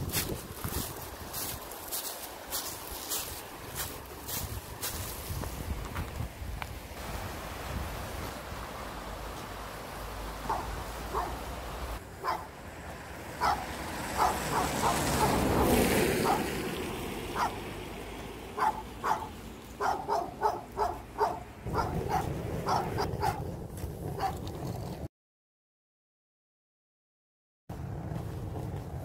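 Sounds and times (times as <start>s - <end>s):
dog barking: 10.4s - 11.4s, 12.2s - 12.5s, 13.4s - 16.5s, 17.4s - 17.6s, 18.6s - 23.5s, 24.2s - 24.4s.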